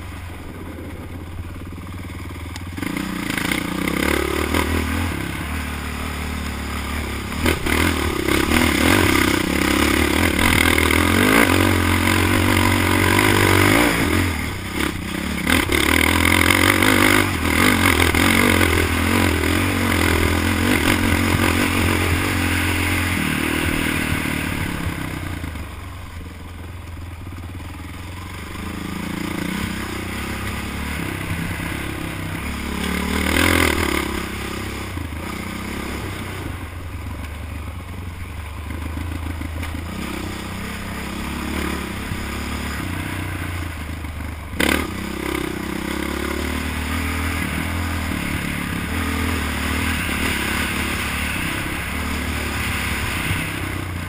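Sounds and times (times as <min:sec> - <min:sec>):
atv engine revving: 0:00.0 - 0:54.0
clatter over rough ground: 0:00.0 - 0:54.0.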